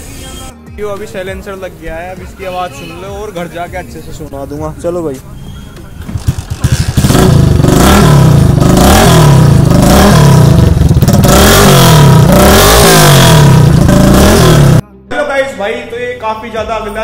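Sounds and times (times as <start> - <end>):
motorcycle engine revving: 5.9 - 14.8.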